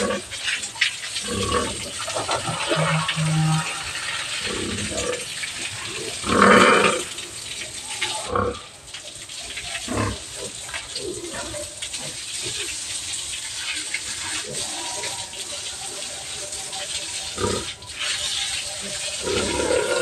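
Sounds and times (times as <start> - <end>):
hose water spraying and splashing: 0.0 - 20.0
pig calling: 1.2 - 7.2, 14.2 - 20.0.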